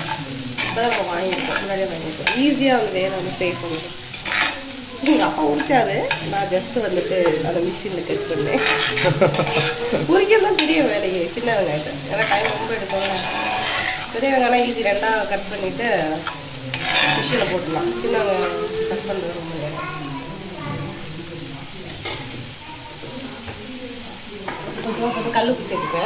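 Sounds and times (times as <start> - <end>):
spoon scraping pan: 0.0 - 19.8
shallots sizzling in hot oil: 0.0 - 26.0.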